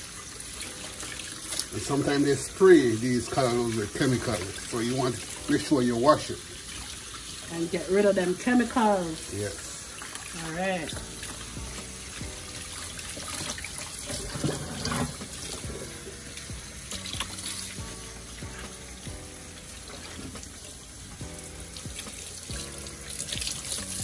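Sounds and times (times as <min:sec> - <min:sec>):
background music: 0:00.0 - 0:24.0
tap water running into sink: 0:00.0 - 0:24.0
water splashing into basin: 0:08.5 - 0:24.0.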